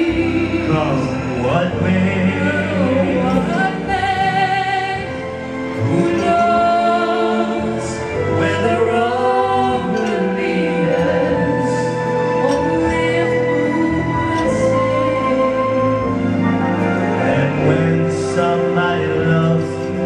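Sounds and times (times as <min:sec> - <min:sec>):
instrumental accompaniment: 0:00.0 - 0:20.0
man and woman singing a duet: 0:00.0 - 0:20.0.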